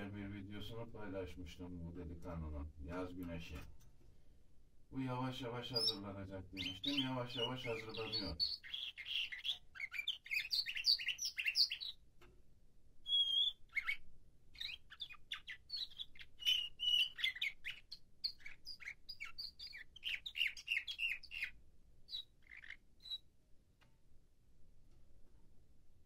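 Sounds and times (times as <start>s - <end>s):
canary singing chirps and trills: 5.2s - 12.2s, 13.0s - 23.4s
bird whistle: 7.9s - 11.9s, 13.0s - 14.0s, 14.6s - 21.5s, 22.1s - 23.2s.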